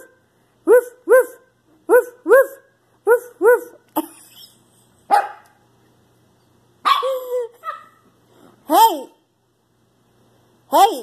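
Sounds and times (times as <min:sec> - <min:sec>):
puppy barking in high yips: 0:05.1 - 0:05.6, 0:06.8 - 0:08.1.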